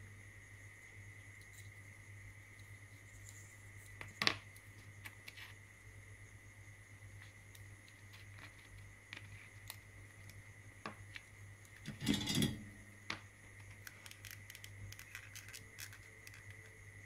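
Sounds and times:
metal parts clattering: 0:11.9 - 0:12.8
small clicks and taps: 0:13.1 - 0:16.8.

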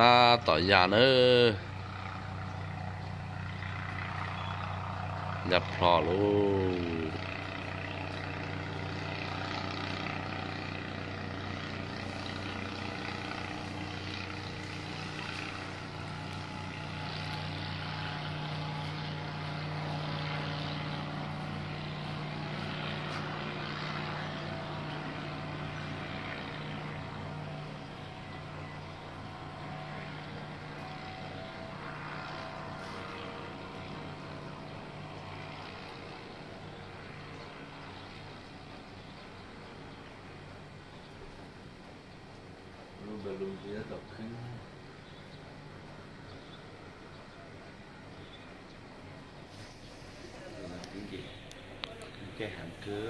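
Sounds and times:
paramotor engine droning: 0:00.0 - 0:53.0.

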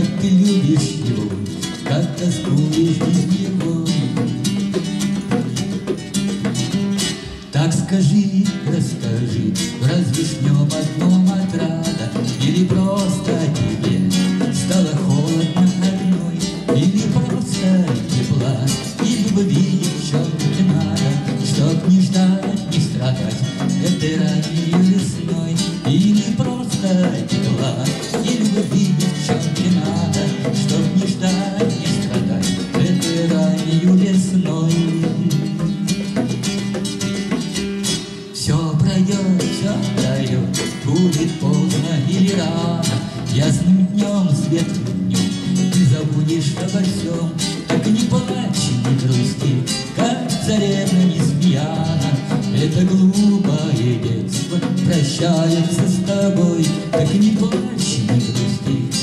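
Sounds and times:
bongos played by hand: 0:00.0 - 0:59.0
classical guitar strumming: 0:00.0 - 0:59.0.

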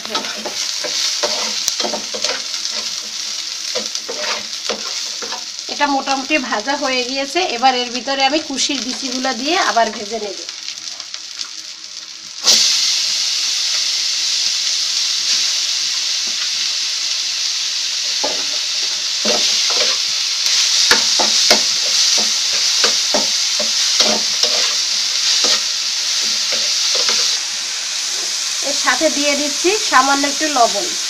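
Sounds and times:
seeds sizzling in hot oil: 0:00.0 - 0:31.0
metal spatula scraping pan: 0:03.8 - 0:05.4.

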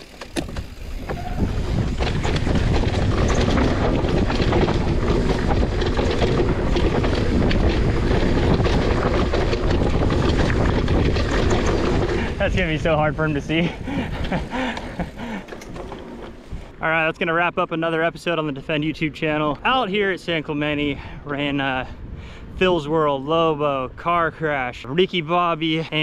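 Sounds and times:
bike tyres rumbling on dirt: 0:00.0 - 0:21.1
bike rattling: 0:00.0 - 0:21.6
wind rush on microphone: 0:00.3 - 0:16.8, 0:20.6 - 0:24.4.

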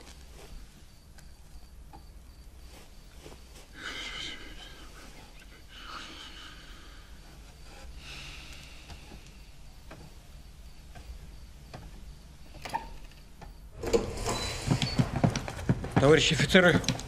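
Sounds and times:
footsteps clattering: 0:13.8 - 0:17.0.

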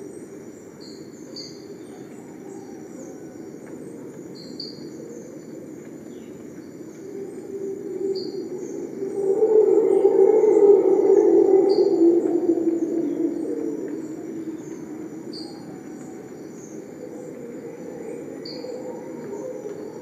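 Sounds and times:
high insect drone: 0:02.5 - 0:20.0
low drone: 0:07.4 - 0:20.0.

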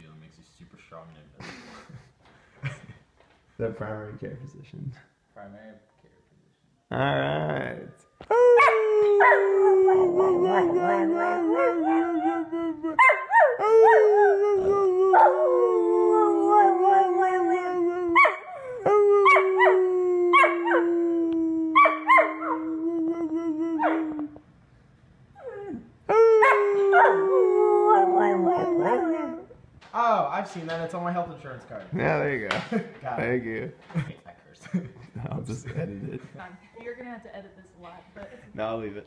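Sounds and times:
dog howling: 0:08.3 - 0:24.4, 0:25.4 - 0:29.6
dog yipping: 0:21.8 - 0:22.6.

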